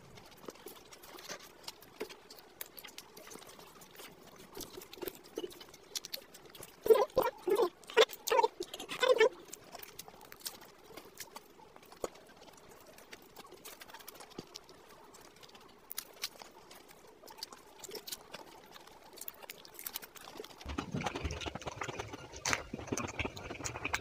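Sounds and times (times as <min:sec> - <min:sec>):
chewing fried pastry: 0:00.0 - 0:24.0
wet mouth clicks: 0:04.7 - 0:10.7, 0:19.0 - 0:24.0.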